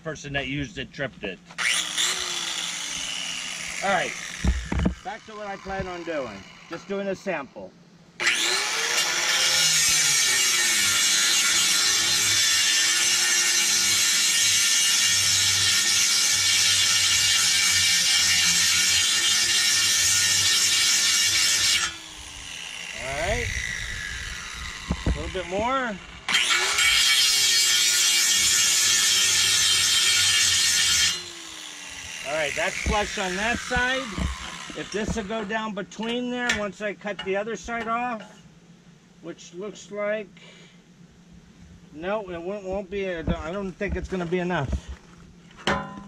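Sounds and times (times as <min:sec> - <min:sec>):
angle grinder grinding metal: 0:01.5 - 0:07.4, 0:08.2 - 0:36.7
motor winding down: 0:01.6 - 0:06.9, 0:08.2 - 0:10.6, 0:21.8 - 0:27.1.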